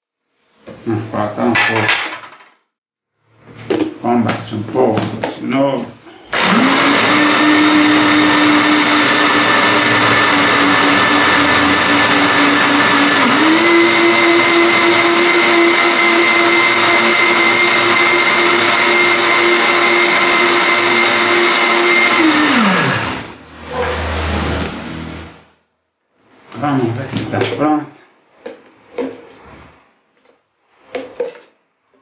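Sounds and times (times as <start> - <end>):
blender motor running: 6.3 - 25.4.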